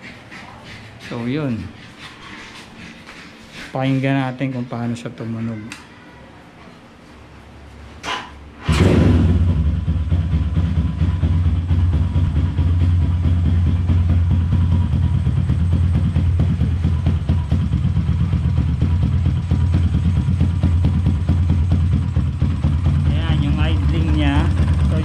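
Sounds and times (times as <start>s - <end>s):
motorcycle engine idling: 9.3s - 25.0s.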